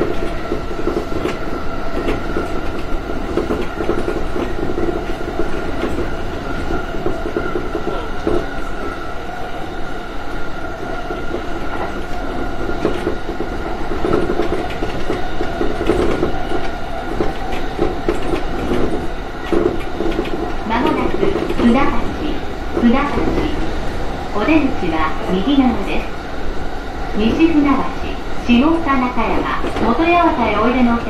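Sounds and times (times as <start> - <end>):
train wheels rumbling on rails: 0.0 - 31.0
clicks over rail joints: 11.1 - 21.8.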